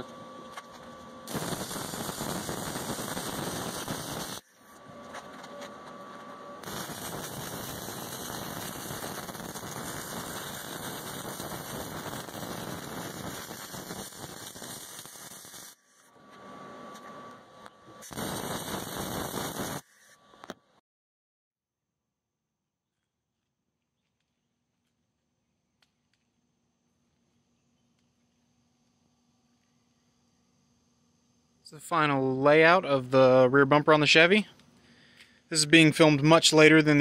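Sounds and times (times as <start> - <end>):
arc welding crackle: 0.0 - 20.6.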